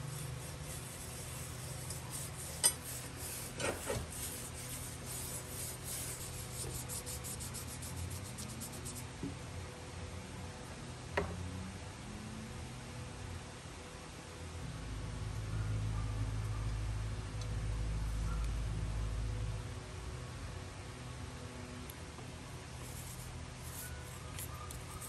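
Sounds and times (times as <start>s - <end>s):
brush scrubbing metal blade: 0.0s - 9.0s.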